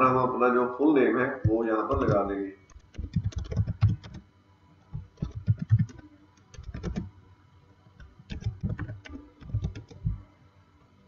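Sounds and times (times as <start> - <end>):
typing on computer keyboard: 1.9 - 4.2, 5.0 - 7.1, 8.0 - 10.2.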